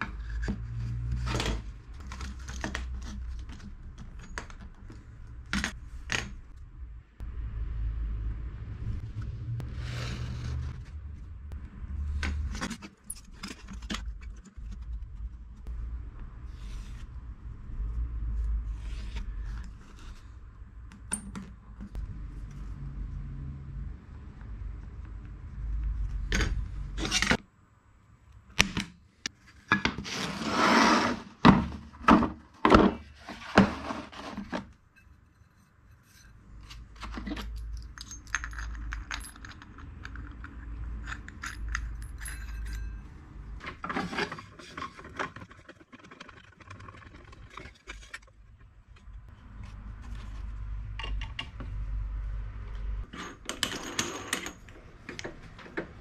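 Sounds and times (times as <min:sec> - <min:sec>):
tool scraping: 0:09.2 - 0:11.3, 0:29.9 - 0:31.8, 0:32.9 - 0:37.4
tools knocking and clinking: 0:37.1 - 0:43.1.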